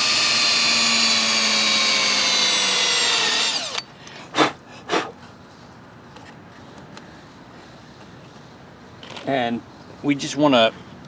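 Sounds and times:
power drill boring plastic: 0.0 - 3.8
short drill bursts: 0.0 - 3.8.

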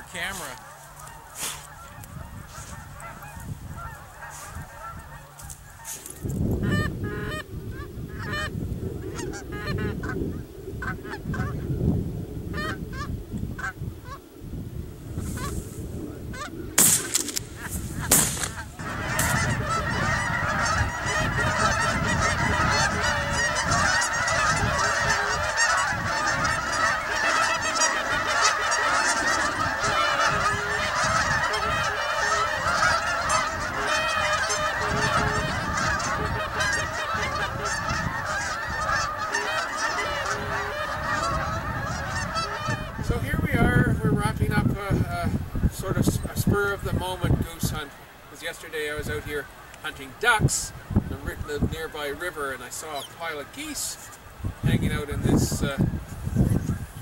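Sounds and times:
geese honking: 0.0 - 11.8, 12.5 - 14.4, 15.2 - 57.0
sharp bangs: 16.8 - 19.4.

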